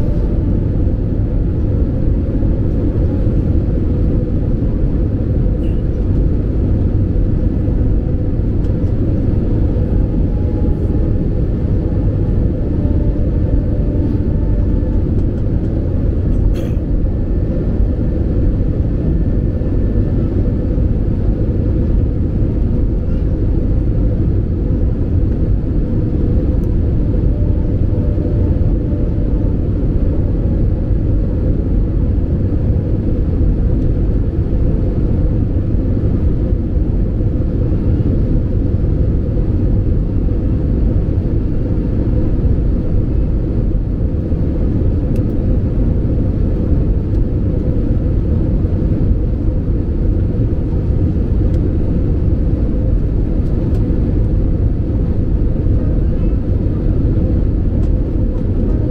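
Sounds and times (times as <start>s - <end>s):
airliner cabin engine rumble: 0.0s - 58.9s.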